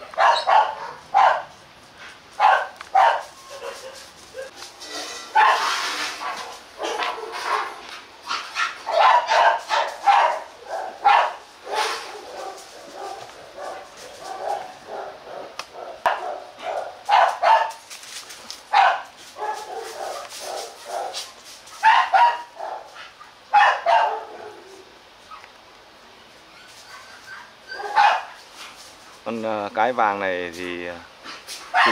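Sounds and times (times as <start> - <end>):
dogs barking: 0.0 - 1.6, 2.4 - 4.6, 5.3 - 17.8, 18.7 - 25.5, 26.9 - 28.4, 31.7 - 31.9.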